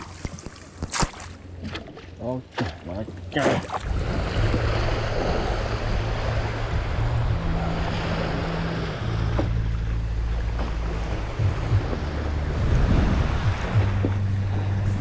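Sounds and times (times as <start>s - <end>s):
small waves washing onto beach: 0.0s - 15.0s
wind buffeting microphone: 3.8s - 15.0s.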